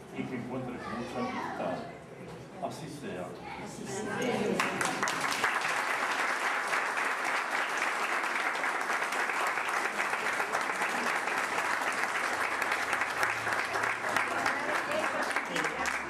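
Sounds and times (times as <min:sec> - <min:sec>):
audience applauding: 0:04.6 - 0:16.0.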